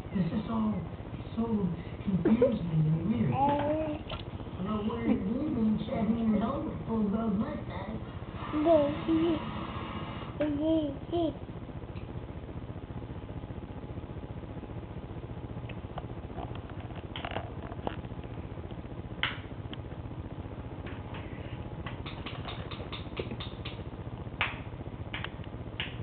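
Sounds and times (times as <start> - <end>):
steady low hum: 0.0 - 26.0
small clicks and rustles: 15.6 - 19.8.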